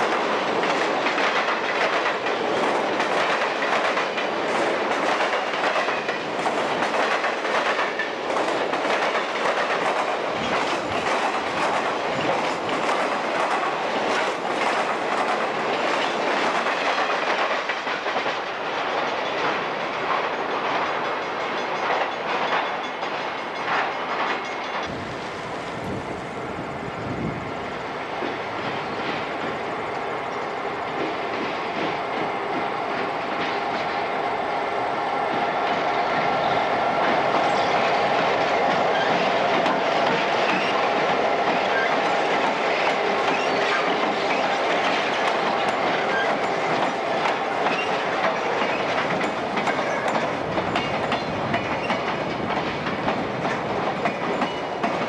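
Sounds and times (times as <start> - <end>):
wheels clattering over rail joints: 37.0 - 55.0.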